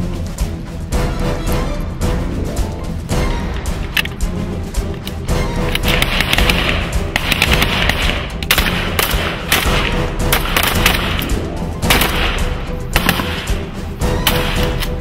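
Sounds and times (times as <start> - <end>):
background music: 0.0 - 15.0
rifles firing rapid shots: 5.7 - 14.9.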